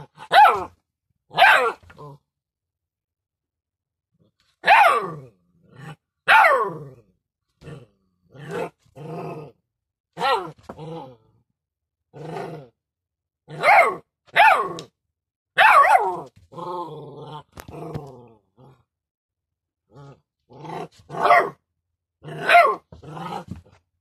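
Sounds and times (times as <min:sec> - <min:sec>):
puppy growling yelping and whining: 0:04.6 - 0:09.6, 0:22.2 - 0:23.7.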